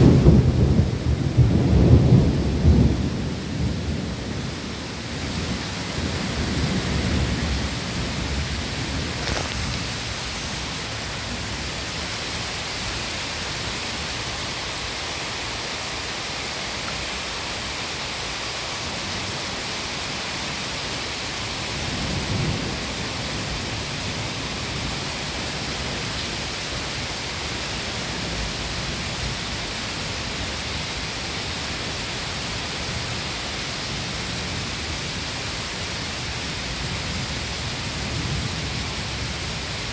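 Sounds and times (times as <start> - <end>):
thunder rumbling: 0.0 - 13.0, 21.7 - 26.1
rain hiss: 0.0 - 39.9.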